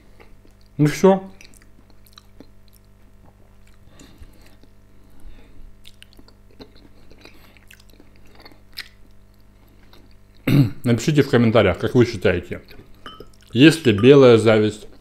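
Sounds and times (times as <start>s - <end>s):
quiet chewing: 0.2s - 0.8s, 1.4s - 10.5s, 12.6s - 13.6s.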